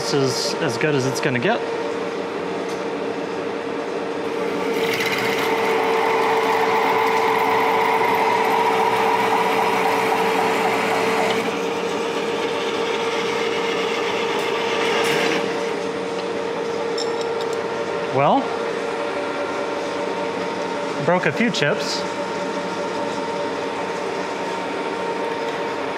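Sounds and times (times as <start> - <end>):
lathe humming: 4.2 - 25.9
metal cutting on lathe: 4.3 - 15.8.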